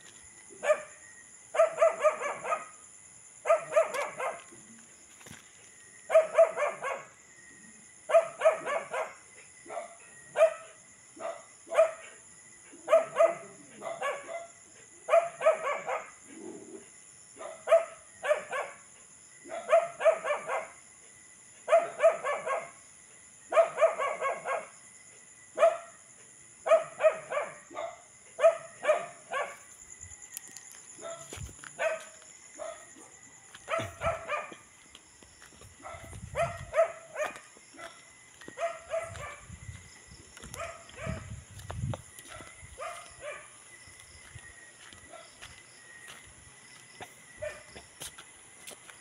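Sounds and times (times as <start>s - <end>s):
dog barking: 0.6s - 2.8s, 3.4s - 4.6s, 6.1s - 7.2s, 8.1s - 12.2s, 12.8s - 16.2s, 17.4s - 20.8s, 21.6s - 22.8s, 23.5s - 24.8s, 25.6s - 26.0s, 26.6s - 29.7s, 31.0s - 34.7s, 35.8s - 39.5s, 40.5s - 41.3s, 42.2s - 43.6s, 47.0s - 47.9s.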